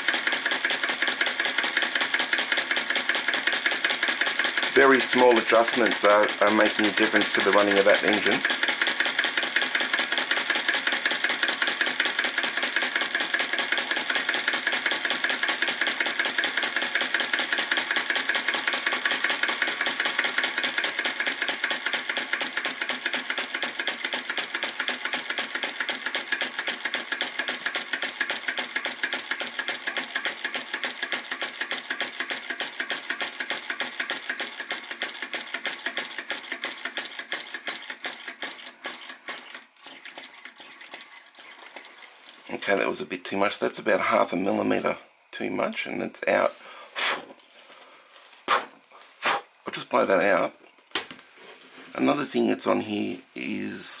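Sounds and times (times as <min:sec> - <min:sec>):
small engine mechanical clatter: 0:00.0 - 0:42.6.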